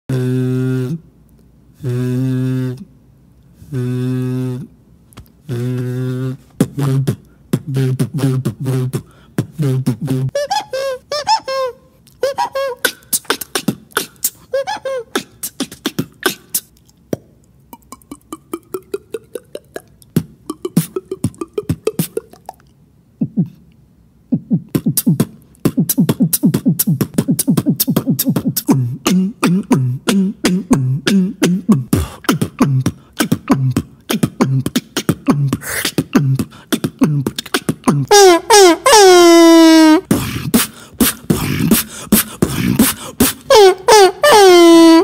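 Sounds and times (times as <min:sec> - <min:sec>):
beatboxing beat with drum-like hits: 0:03.7 - 0:10.4, 0:12.3 - 0:22.6, 0:23.2 - 0:23.6, 0:24.3 - 0:38.5, 0:40.0 - 0:44.3
mouth clicks: 0:12.0 - 0:38.2, 0:39.7 - 0:44.6.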